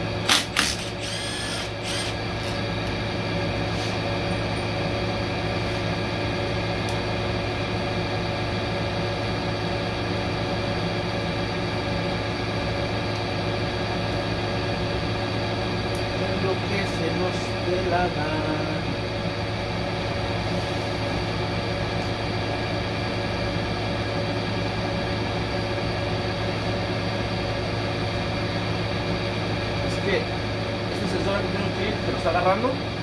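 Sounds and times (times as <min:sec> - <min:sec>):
machinery humming: 0:00.0 - 0:33.0.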